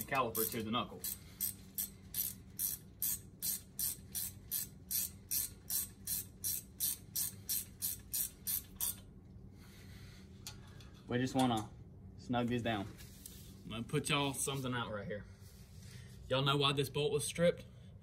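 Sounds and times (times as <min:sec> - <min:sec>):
ratcheting wrench clicking: 0:00.0 - 0:09.1.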